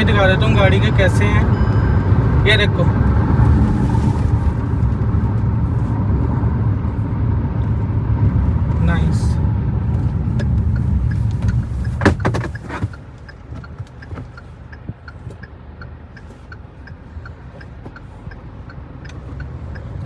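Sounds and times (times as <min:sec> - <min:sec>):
engine and road rumble: 0:00.0 - 0:20.0
turn indicator ticking: 0:09.9 - 0:20.0.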